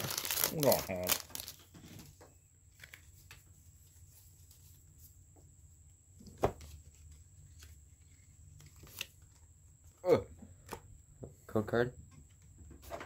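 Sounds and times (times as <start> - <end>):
trading cards handled: 6.4 - 9.4.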